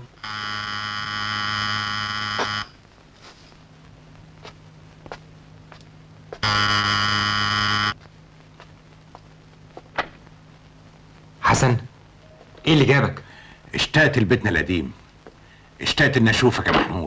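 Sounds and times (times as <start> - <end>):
doorbell buzzer: 0.0 - 2.8, 6.4 - 8.0
faint footsteps: 2.3 - 6.7, 7.4 - 13.7, 15.0 - 15.8.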